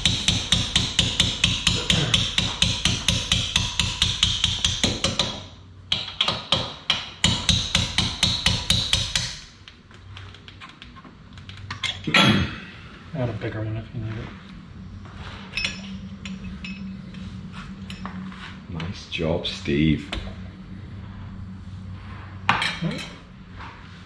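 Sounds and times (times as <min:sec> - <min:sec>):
hammer tapping on metal: 0:00.0 - 0:09.4.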